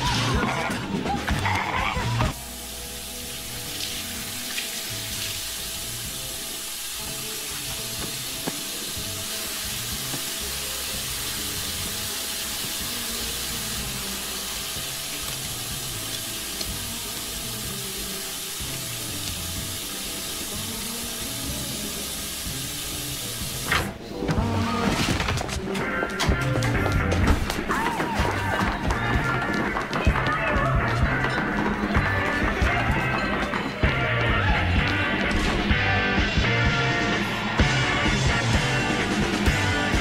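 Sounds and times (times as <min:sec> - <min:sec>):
tap water running into sink: 0:03.6 - 0:21.3.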